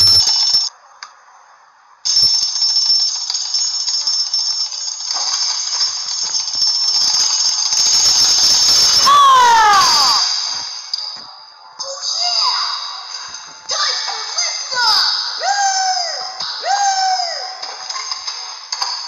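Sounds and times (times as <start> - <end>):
alarm bell ringing: 0.0 - 0.7, 2.0 - 11.2.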